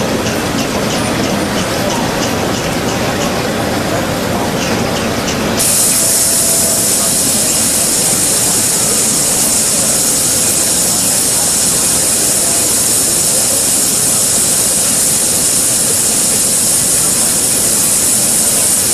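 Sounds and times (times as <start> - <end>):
water spraying hiss: 5.4 - 18.9.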